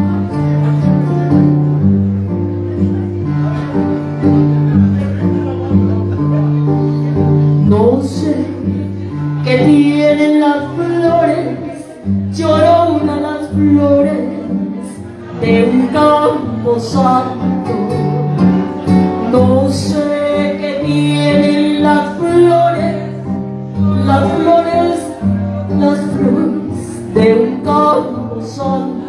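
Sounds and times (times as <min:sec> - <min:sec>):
karaoke backing track: 0:00.0 - 0:29.0
woman singing into microphone: 0:07.5 - 0:17.9, 0:19.2 - 0:29.0.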